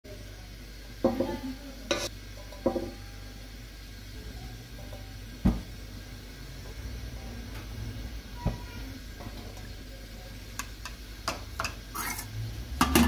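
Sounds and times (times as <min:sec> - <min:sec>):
metal utensil clanking on pan: 0:01.0 - 0:03.0, 0:10.6 - 0:13.0.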